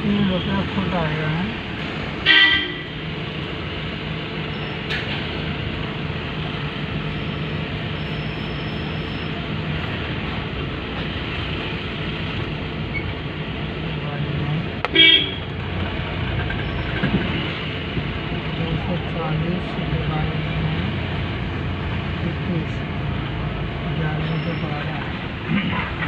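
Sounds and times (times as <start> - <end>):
vehicle running hum: 0.0 - 26.0
car horn honk: 2.2 - 3.0, 14.9 - 15.5.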